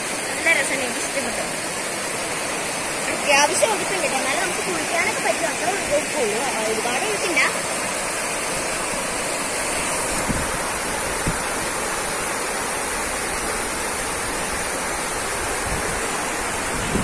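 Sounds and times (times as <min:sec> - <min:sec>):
water rushing down rocks: 0:00.0 - 0:17.0.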